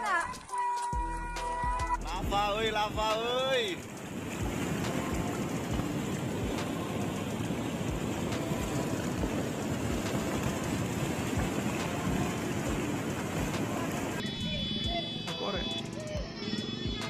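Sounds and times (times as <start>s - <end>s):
wind gusts buffeting microphone: 3.0s - 14.2s
rushing storm wind: 3.7s - 14.2s.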